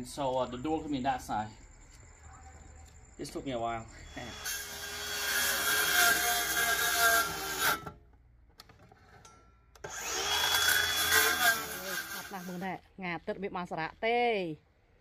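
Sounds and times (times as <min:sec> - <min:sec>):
circular saw cutting wood sheet: 0:04.1 - 0:07.9, 0:09.9 - 0:12.7.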